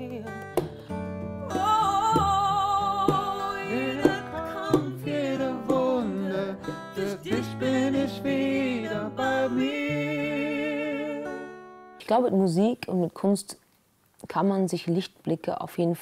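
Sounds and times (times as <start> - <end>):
woman singing slow melody: 0.0 - 0.7, 1.4 - 11.4
acoustic guitar: 0.0 - 13.0.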